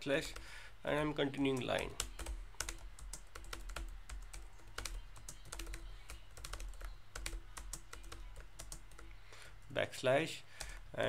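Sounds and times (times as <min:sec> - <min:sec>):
typing on computer keyboard: 0:01.5 - 0:09.1.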